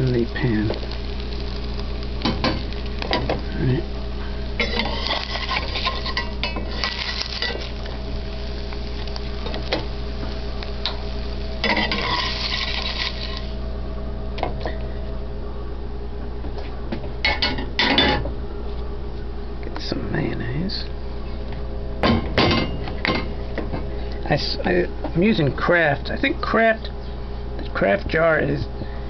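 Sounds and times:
steady low hum: 0.0s - 29.0s
spatula scraping a frying pan: 4.6s - 7.7s, 11.6s - 13.4s.

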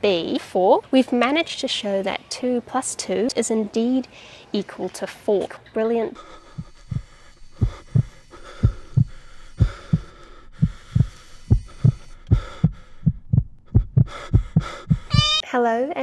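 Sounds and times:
faint steady hum: 6.0s - 15.4s
heartbeat double thump: 6.4s - 15.4s.

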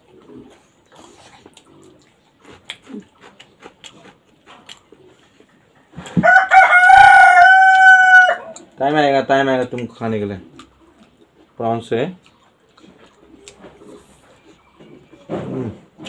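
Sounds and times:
people eating smacking: 0.0s - 6.4s, 9.6s - 16.0s
rooster crowing: 6.2s - 8.6s.

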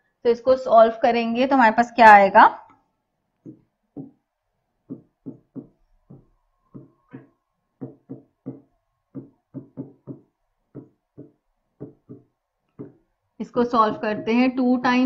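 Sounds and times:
stylus tapping on display board: 3.4s - 4.2s, 4.8s - 13.1s.

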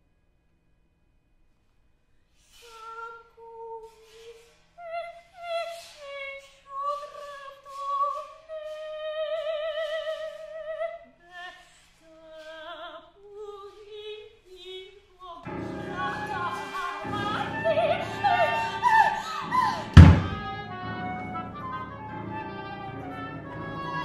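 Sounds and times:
woman singing opera: 2.6s - 24.0s.

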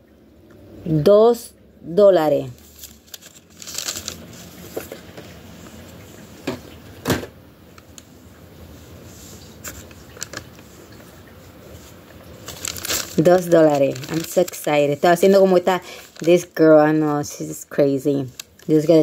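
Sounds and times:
paper receipt handling: 2.6s - 5.0s, 12.4s - 17.1s.

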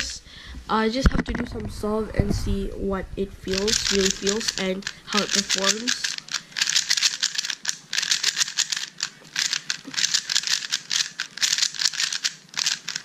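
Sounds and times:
puzzle cube plastic clicking: 3.5s - 13.0s.

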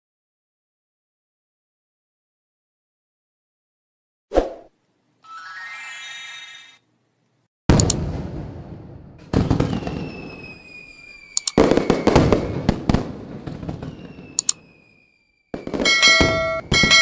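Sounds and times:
bright bell-like chime: 5.2s - 6.8s, 15.9s - 17.0s
firework bangs with crackling: 7.8s - 17.0s
whistle sliding down in pitch: 9.9s - 12.5s.

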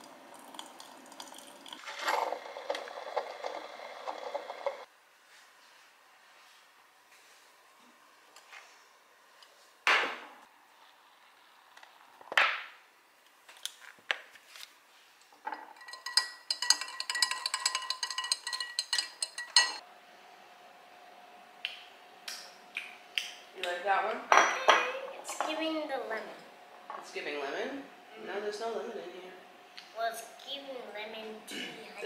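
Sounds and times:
metal ball clinking in glass mug: 15.5s - 19.8s.

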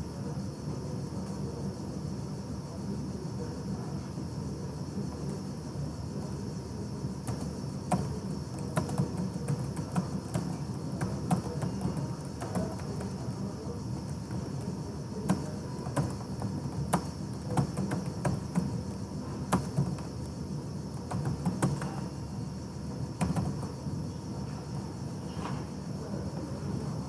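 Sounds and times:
low background hum: 0.0s - 27.0s
keyboard keys clicking: 7.2s - 22.2s, 22.9s - 23.8s.

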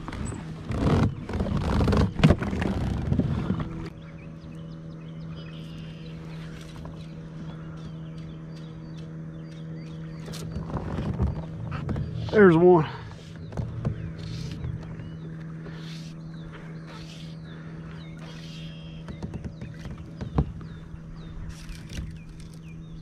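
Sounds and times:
steady low hum: 0.0s - 23.0s
knocking in a kayak: 13.4s - 15.0s, 19.0s - 20.8s.

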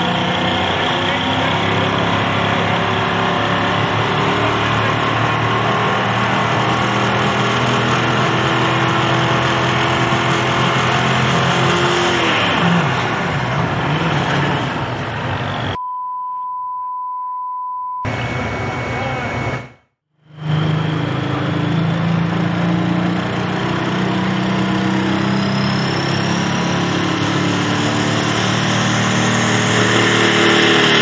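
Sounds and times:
diesel engine revving high: 0.0s - 15.8s, 18.1s - 31.0s
steady beep tone: 15.7s - 19.9s.

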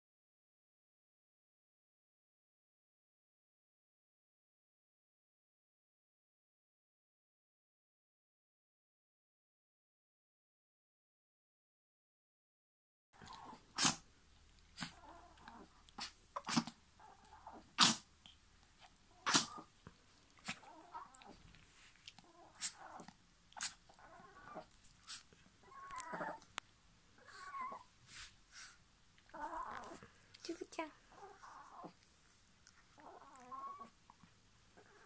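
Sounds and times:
dog snorting: 13.2s - 14.1s, 14.7s - 25.3s
dog grunting softly: 14.7s - 26.5s, 32.8s - 35.0s.

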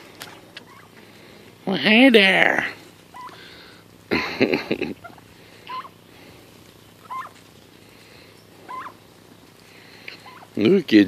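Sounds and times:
turkey calling: 0.2s - 1.6s, 2.8s - 4.2s, 4.8s - 10.9s
quiet bird chirps: 5.0s - 10.6s.

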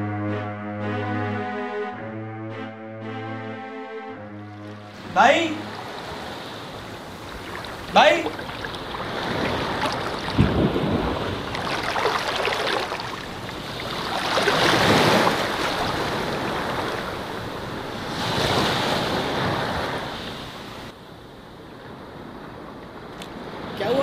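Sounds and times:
surf washing onto beach: 4.8s - 20.9s
wind rumble on microphone: 6.2s - 20.1s.

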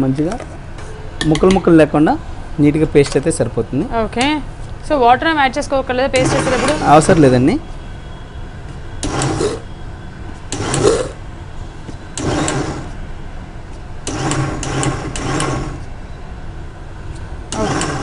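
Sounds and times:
mixer grinder motor bursts: 9.0s - 9.6s, 10.5s - 11.2s, 12.2s - 13.0s, 14.0s - 15.8s, 17.5s - 18.0s.

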